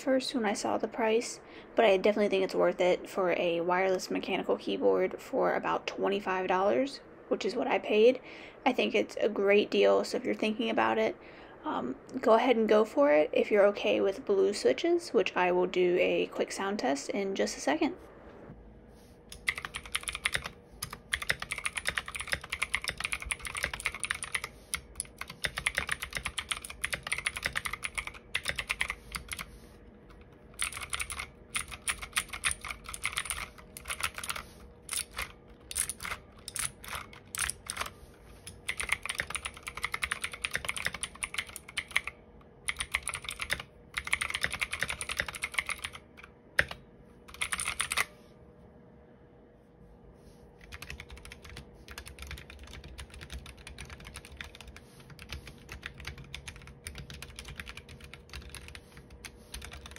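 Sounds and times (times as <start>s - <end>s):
clicky mechanical keyboard typing: 19.3s - 29.5s, 30.1s - 48.1s, 50.6s - 59.9s.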